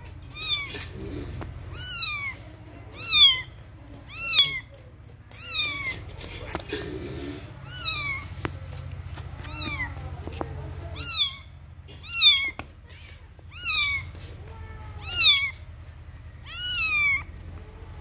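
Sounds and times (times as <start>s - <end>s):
kitten meowing: 0.3s - 0.9s, 1.7s - 3.5s, 4.1s - 4.7s, 5.3s - 6.2s, 7.6s - 8.4s, 9.4s - 10.1s, 10.8s - 15.6s, 16.4s - 17.3s.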